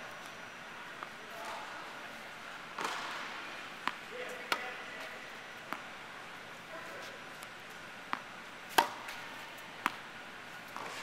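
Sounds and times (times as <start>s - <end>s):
tennis ball pops: 8.1s - 9.2s.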